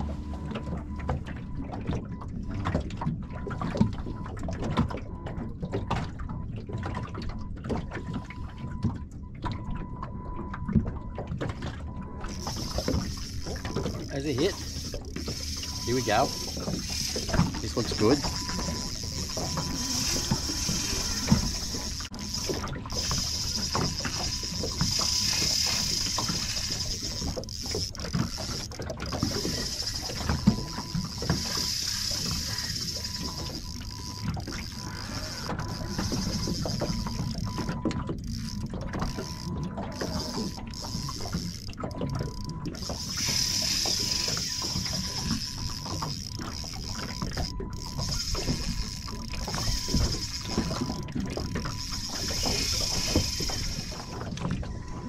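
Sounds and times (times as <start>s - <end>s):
water slapping boat hull: 0.0s - 55.0s
fishing reel clicking: 12.3s - 54.4s.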